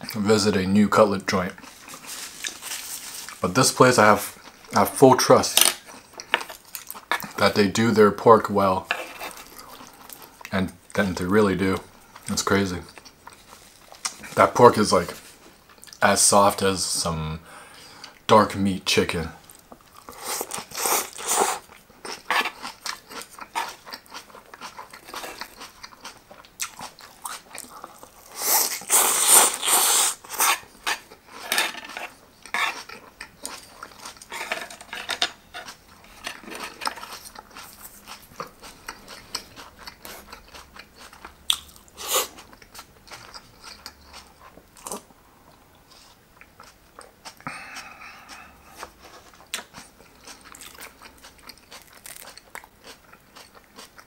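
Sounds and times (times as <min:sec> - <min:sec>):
person chewing crunchy cabbage: 0:01.5 - 0:03.4, 0:05.8 - 0:07.4, 0:08.9 - 0:10.5, 0:12.0 - 0:14.4, 0:19.4 - 0:54.0.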